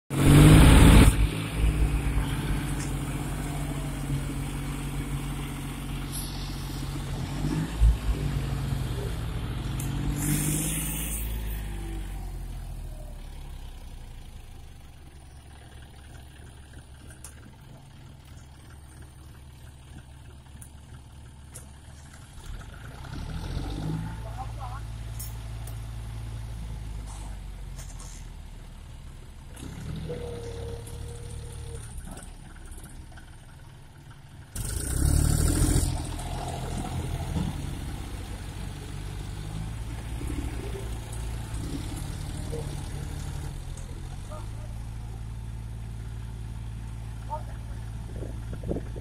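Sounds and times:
tractor diesel engine revving: 0.1s - 14.8s, 22.3s - 25.0s, 29.5s - 33.4s, 34.5s - 49.0s.

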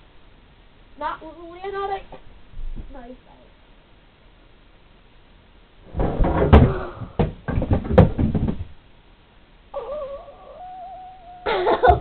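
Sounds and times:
body thudding against wooden rail: 5.9s - 8.8s.

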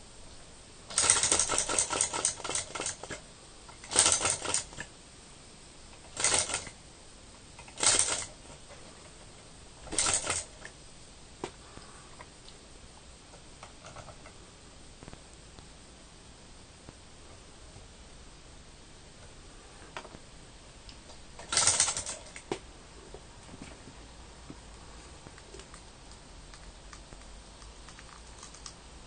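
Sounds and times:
model engine clicking: 0.9s - 3.1s, 3.7s - 4.9s, 6.0s - 6.7s, 7.6s - 8.3s, 9.9s - 10.6s, 21.4s - 22.4s.

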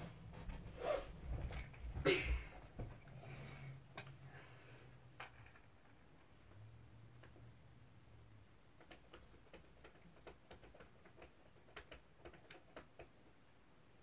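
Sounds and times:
faint laptop keyboard typing: 8.4s - 14.0s.

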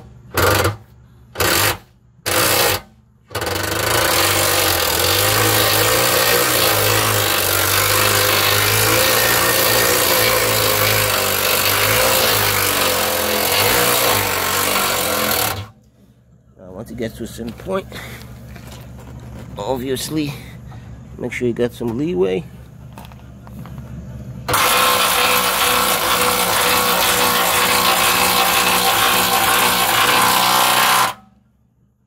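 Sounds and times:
cordless impact gun running: 24.5s - 31.2s.

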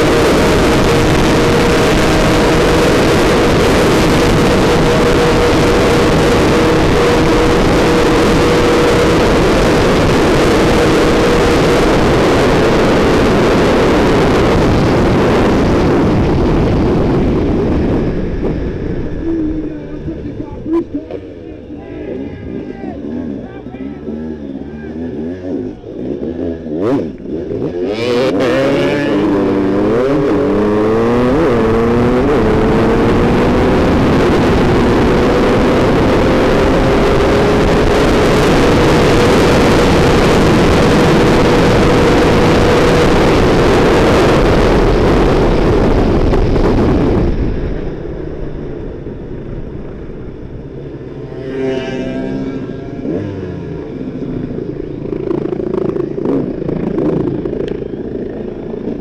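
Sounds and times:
loud rushing noise: 0.0s - 59.0s
motorcycle engine revving: 0.0s - 59.0s.

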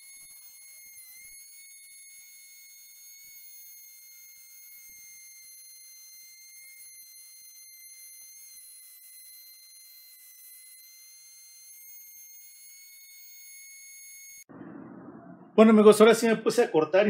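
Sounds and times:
wood router whining: 0.0s - 14.5s.

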